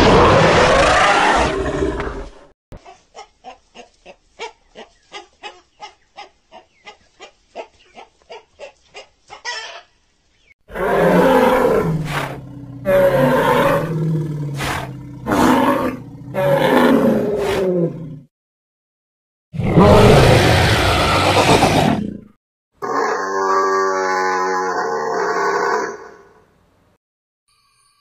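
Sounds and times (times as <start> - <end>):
deep dinosaur roars: 0.0 - 2.4, 10.7 - 18.3, 19.6 - 26.3.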